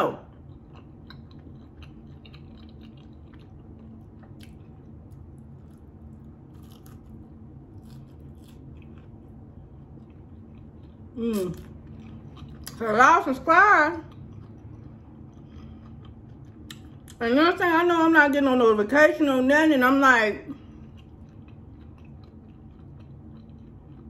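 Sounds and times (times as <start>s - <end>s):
steady low hum: 0.0s - 24.0s
person chewing food: 0.2s - 12.8s, 14.0s - 17.2s, 20.5s - 24.0s.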